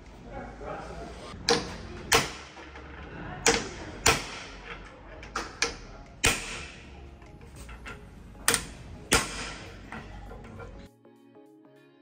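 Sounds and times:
hammer striking steel chisel: 0:05.4 - 0:06.9, 0:08.4 - 0:10.5.

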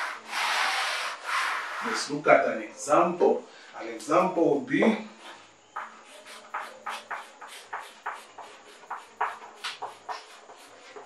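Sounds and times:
chalk scratching on chalkboard: 0:05.8 - 0:11.0.

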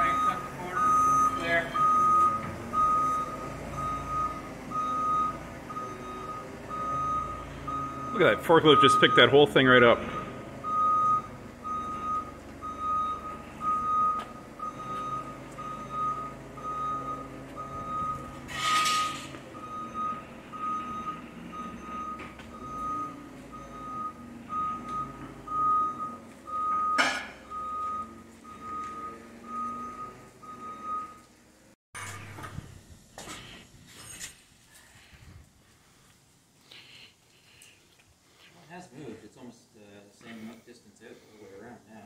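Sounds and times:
backup alarm beeping: 0:00.0 - 0:31.3
forklift engine running: 0:00.0 - 0:33.9.

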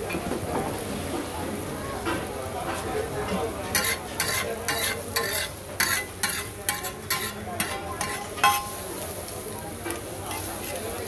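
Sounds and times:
masala sizzling in oil: 0:00.0 - 0:11.0
metal spatula scraping on iron pan: 0:03.7 - 0:08.9.

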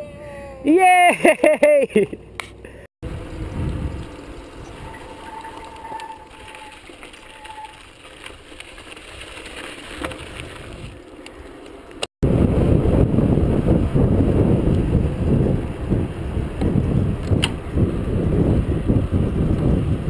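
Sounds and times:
wind rushing over microphone: 0:03.0 - 0:07.9, 0:12.2 - 0:20.0
bike tyres rolling on pavement: 0:03.0 - 0:20.0.

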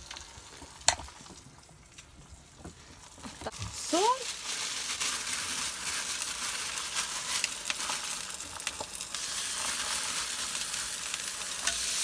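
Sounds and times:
eggs sizzling in a pan: 0:00.0 - 0:12.0
plastic bag rustling: 0:03.3 - 0:08.8.

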